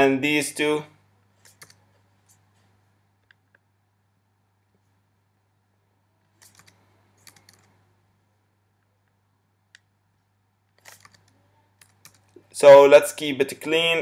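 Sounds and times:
low steady hum: 0.0s - 14.0s
keyboard and mouse clicks: 1.4s - 1.8s, 6.3s - 7.8s, 10.7s - 12.4s.

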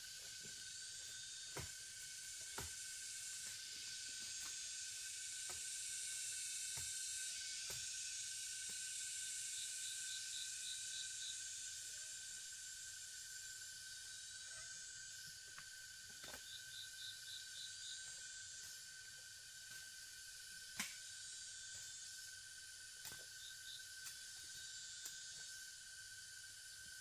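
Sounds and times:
insects hissing: 0.0s - 27.0s
thin steady whine: 0.0s - 27.0s
sharp snaps: 20.7s - 21.0s.

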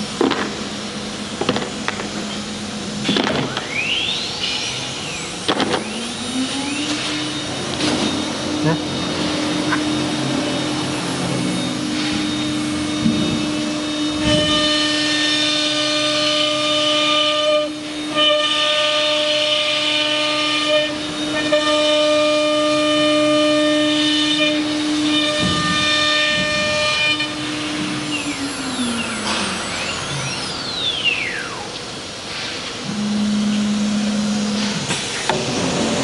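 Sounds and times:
router cutting wood with whine: 5.4s - 16.9s, 20.4s - 21.7s, 24.1s - 31.8s
router spindle humming: 5.8s - 16.9s, 24.2s - 31.8s.

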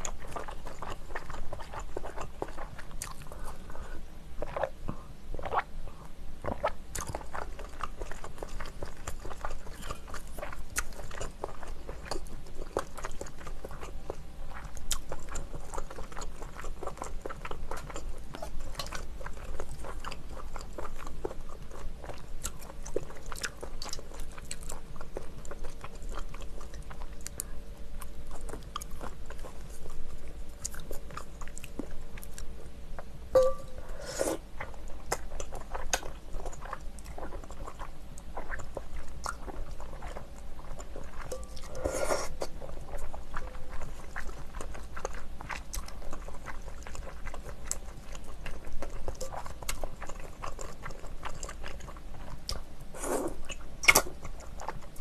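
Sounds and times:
chewing and smacking: 0.0s - 33.7s, 34.5s - 55.0s
slurp of noodles: 33.9s - 34.4s, 41.7s - 42.5s.

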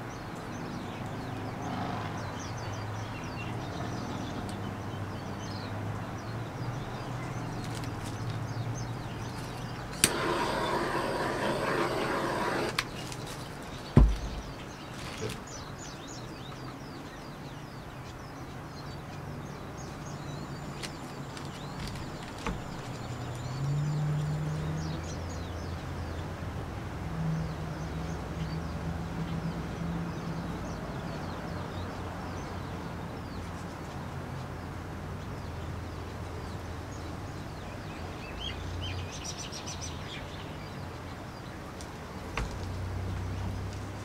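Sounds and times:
small birds chirping: 0.0s - 44.0s
burst of hissing: 10.0s - 12.8s
dull thump: 13.8s - 15.4s.

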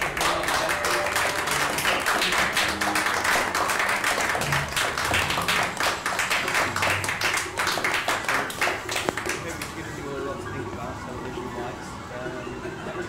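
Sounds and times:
people clapping: 0.0s - 10.0s.

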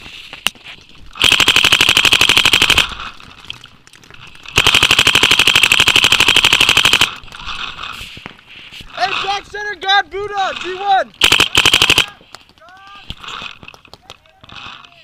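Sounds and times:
paintball marker rapid firing: 1.2s - 3.0s, 4.5s - 7.2s, 11.2s - 14.7s.

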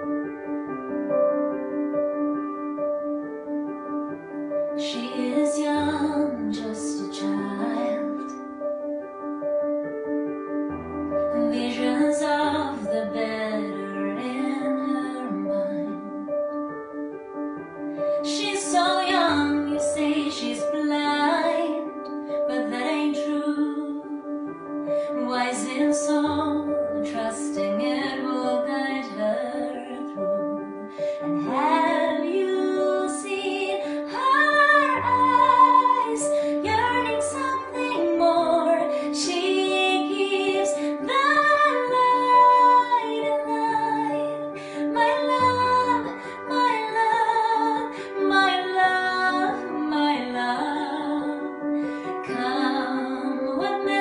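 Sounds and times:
digital piano: 0.0s - 54.0s
woman singing: 4.8s - 8.3s, 11.3s - 16.3s, 18.2s - 24.4s, 25.0s - 54.0s.

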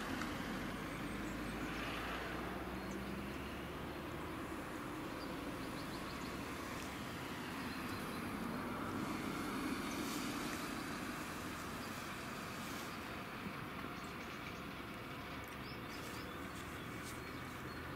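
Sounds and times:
harvester engine and machinery drone: 0.0s - 17.9s.

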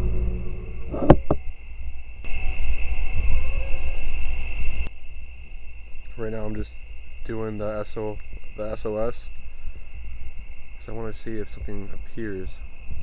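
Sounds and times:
low rumble: 0.0s - 2.2s
crickets chirping: 0.0s - 13.0s.

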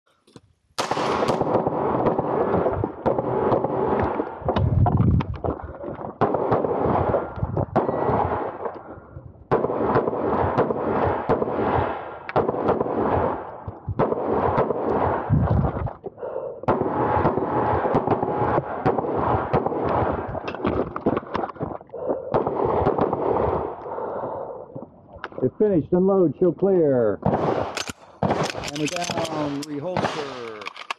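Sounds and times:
pistol shots: 0.8s - 4.6s, 6.0s - 8.8s, 9.5s - 15.3s, 16.6s - 21.2s, 22.3s - 23.8s, 27.2s - 30.9s.

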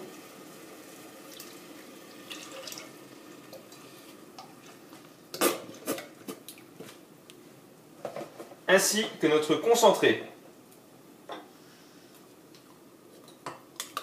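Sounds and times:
thick liquid pouring into saucepan: 0.2s - 4.8s.

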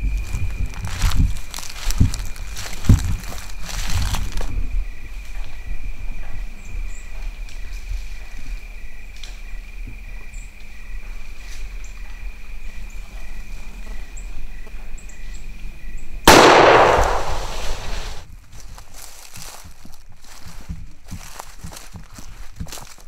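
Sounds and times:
insects chirping: 0.0s - 18.2s, 19.0s - 23.0s
rifle shot echoing: 16.3s - 18.2s.

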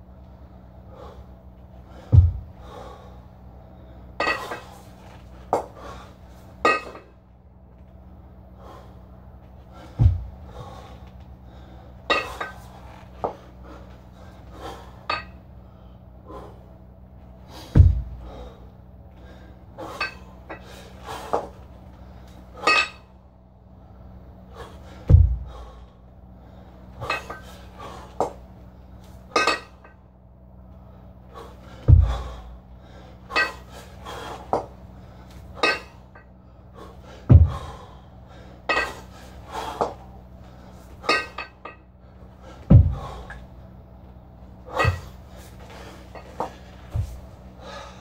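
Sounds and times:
kettlebells thumping down: 2.1s - 2.6s, 9.9s - 10.4s, 17.7s - 18.3s, 25.0s - 25.6s, 31.8s - 32.5s, 37.2s - 37.8s, 41.0s - 41.7s, 42.6s - 43.4s, 44.7s - 45.2s
kettlebells clinking: 4.2s - 4.7s, 6.6s - 7.1s, 12.1s - 12.7s, 19.8s - 20.7s, 22.6s - 23.1s, 27.0s - 28.4s, 29.3s - 30.0s, 33.2s - 33.7s, 35.4s - 36.3s, 38.6s - 39.1s, 40.9s - 41.8s, 44.7s - 45.2s.

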